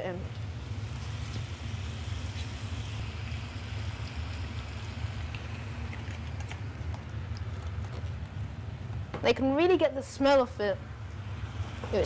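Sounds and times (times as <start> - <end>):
food sizzling in a frying pan: 0.5 - 6.8, 11.2 - 12.0.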